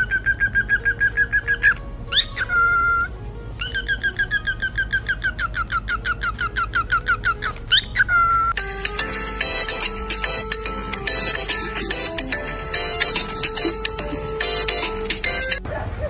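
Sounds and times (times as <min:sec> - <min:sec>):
cockatiel chirping: 0:00.0 - 0:08.6
cockatiel whistle: 0:00.0 - 0:08.6.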